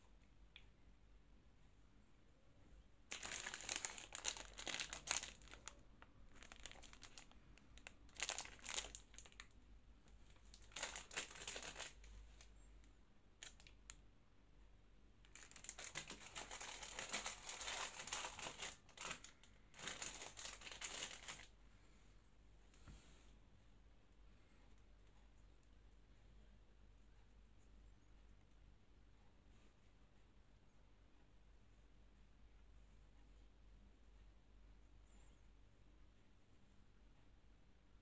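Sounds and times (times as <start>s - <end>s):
plastic wrapper crinkling and tearing: 3.1s - 9.5s, 10.3s - 12.5s, 13.4s - 13.8s, 15.2s - 21.5s.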